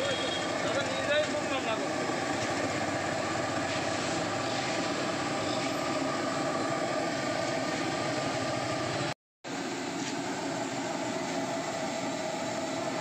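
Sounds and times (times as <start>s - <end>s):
sizzling and bubbling in hot oil: 0.0s - 13.0s.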